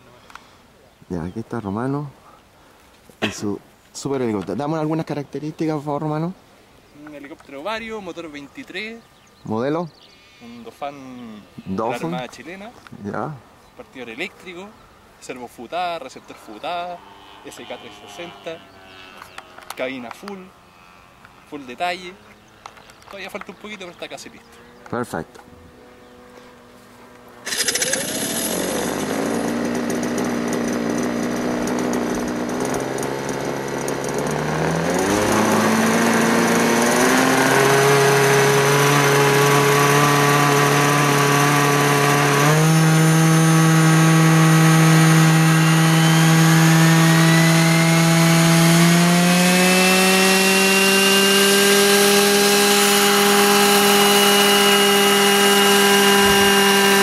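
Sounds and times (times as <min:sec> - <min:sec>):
model helicopter engine: 0:27.2 - 0:57.0
rotors spinning up: 0:27.4 - 0:57.0.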